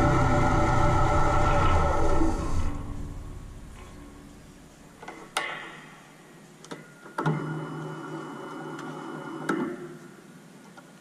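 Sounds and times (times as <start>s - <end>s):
lathe whirring: 0.0s - 4.3s.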